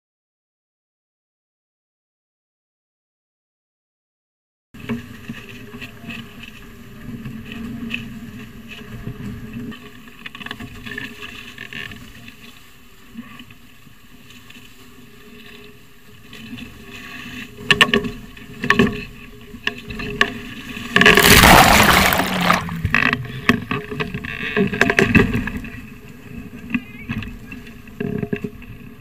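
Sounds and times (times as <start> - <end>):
loud splash: 21.0 - 22.9.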